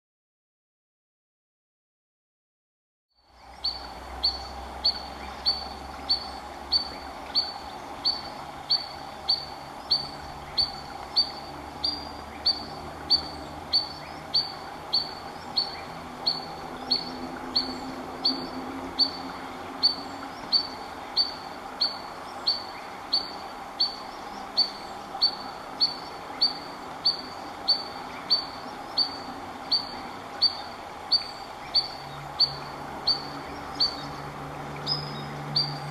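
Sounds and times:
sandpiper alarm calls: 0:03.6 - 0:19.2, 0:19.8 - 0:34.1.

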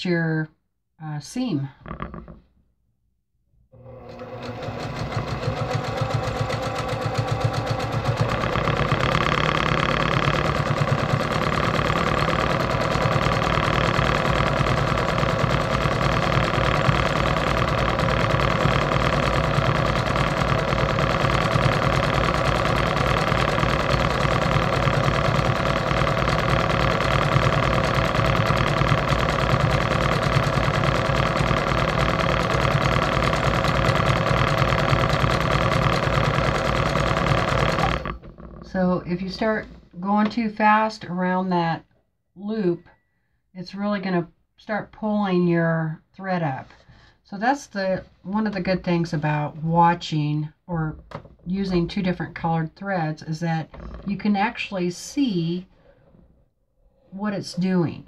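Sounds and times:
sewing machine stitching: 0:03.8 - 0:40.9, 0:51.4 - 0:56.1.

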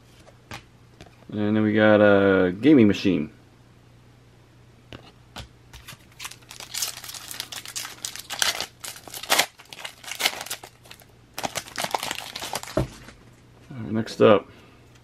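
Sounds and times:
foil wrapper tearing and crinkling: 0:05.8 - 0:13.1.

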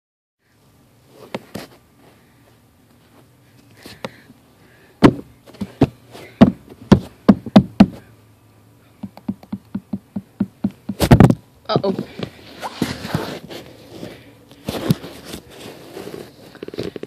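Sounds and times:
sharp knocks on hard surface: 0:09.0 - 0:11.4.

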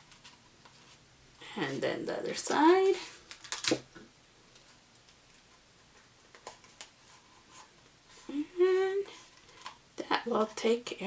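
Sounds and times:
faint ticks and rustles of paper: 0:00.0 - 0:03.7, 0:04.4 - 0:11.0
sticky tape ripping: 0:03.3 - 0:03.9.

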